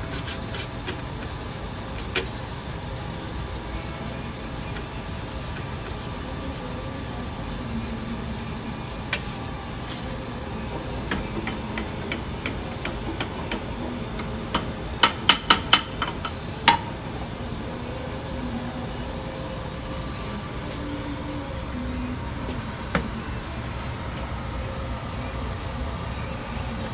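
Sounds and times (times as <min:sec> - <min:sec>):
steady low hum: 0:00.0 - 0:15.1, 0:15.9 - 0:26.9
small hammer tapping on metal: 0:14.6 - 0:16.8.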